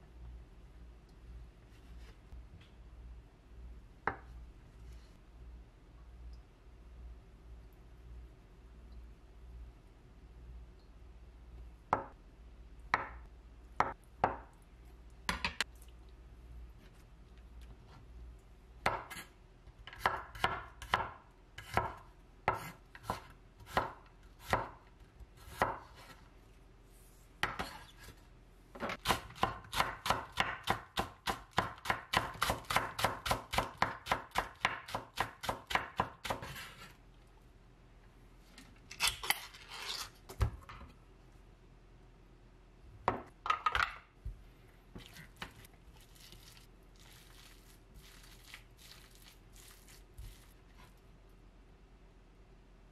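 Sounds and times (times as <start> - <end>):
knife cutting on a cutting board: 34.4 - 37.0.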